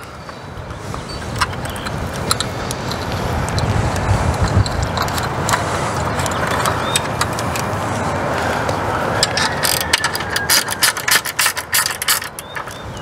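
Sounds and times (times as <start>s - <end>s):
wind on microphone: 0.0s - 13.0s
awning roller metallic clicks: 1.1s - 13.0s.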